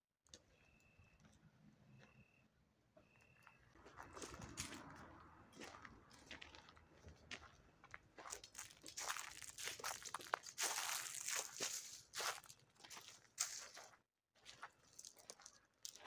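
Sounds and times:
footsteps crunching dry leaves: 8.2s - 16.0s.

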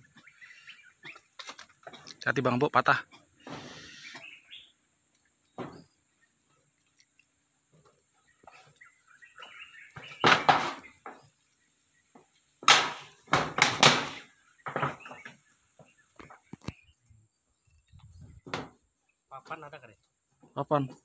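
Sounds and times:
metal roofing sheets banging: 9.9s - 11.3s, 12.6s - 15.4s.

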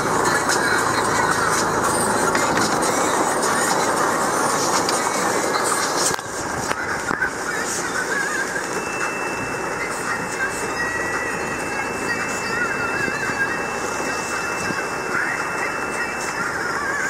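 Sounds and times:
rain pattering on car roof: 0.0s - 8.8s
vehicle running noise: 0.0s - 17.0s.

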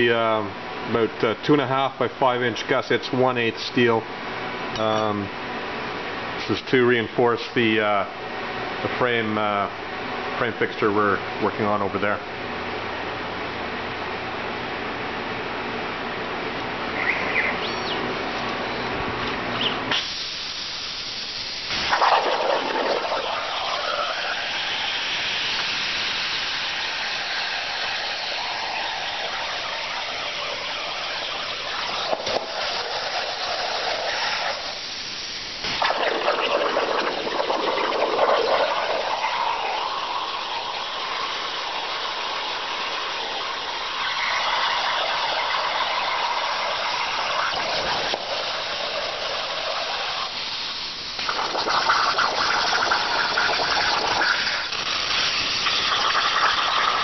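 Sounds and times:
plasma cutter hissing: 19.9s - 36.5s, 38.4s - 57.0s.

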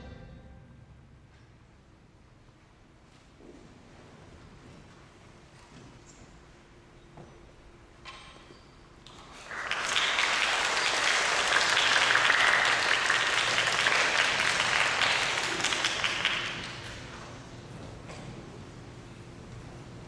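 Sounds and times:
audience applause: 9.1s - 17.6s.

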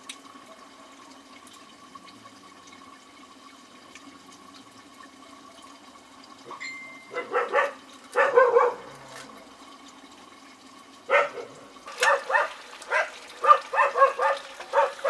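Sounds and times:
dog barking: 7.1s - 9.2s, 11.1s - 15.0s.

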